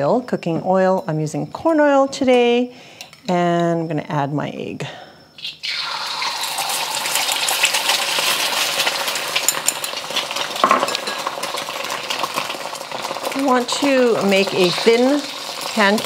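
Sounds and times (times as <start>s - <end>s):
eggs sizzling in hot oil: 5.4s - 16.0s.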